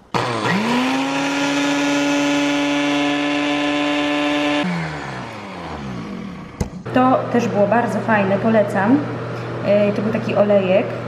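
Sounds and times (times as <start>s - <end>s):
blender motor whining: 0.0s - 6.8s.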